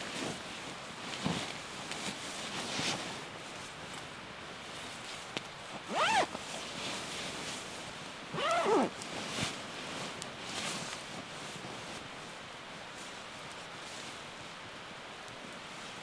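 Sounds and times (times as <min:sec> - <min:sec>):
zipper being pulled: 0:05.9 - 0:06.4, 0:08.3 - 0:09.0.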